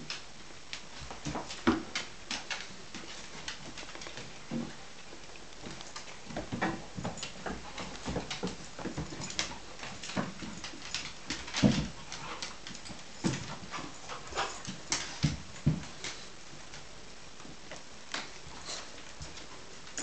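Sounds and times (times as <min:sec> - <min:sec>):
dog claws clicking and scuffling: 0:00.0 - 0:16.3.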